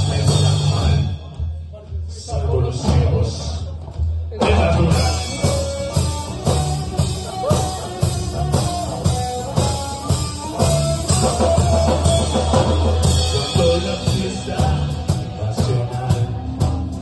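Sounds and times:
bass guitar: 0.0s - 17.0s
drum kit beat: 0.0s - 17.0s
electric guitar melody: 4.9s - 17.0s.

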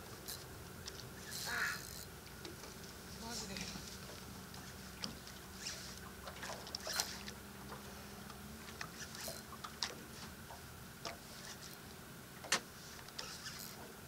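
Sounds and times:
fishing reel clicking: 0.2s - 2.1s, 6.6s - 7.3s, 13.0s - 13.8s.

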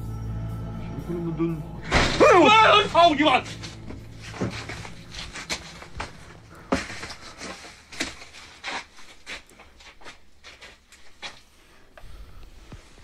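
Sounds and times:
footsteps: 3.3s - 11.8s.

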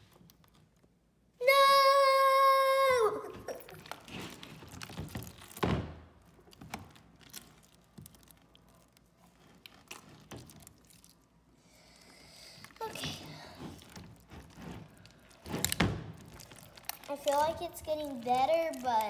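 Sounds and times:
hands squelching sticky slime: 3.5s - 5.6s, 6.2s - 19.0s.

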